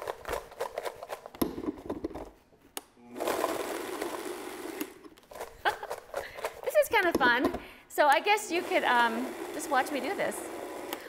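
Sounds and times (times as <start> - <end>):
blender jar shaken with clattering: 0.0 - 1.3, 5.3 - 7.4
blender motor grinding: 3.0 - 6.6, 8.4 - 11.0.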